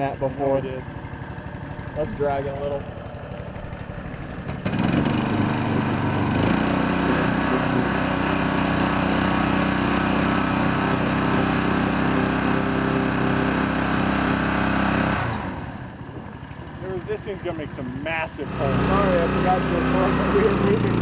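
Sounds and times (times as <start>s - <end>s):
boat motor revving: 0.0s - 21.0s.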